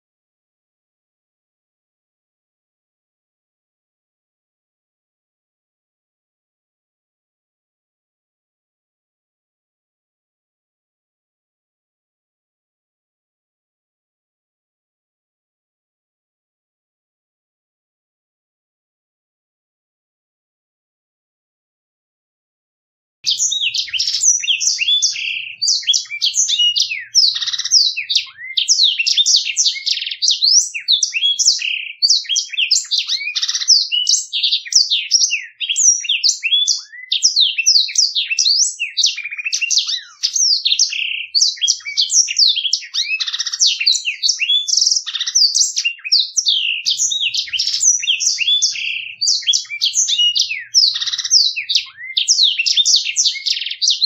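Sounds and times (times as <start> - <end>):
canary singing trills: 23.2 - 54.0.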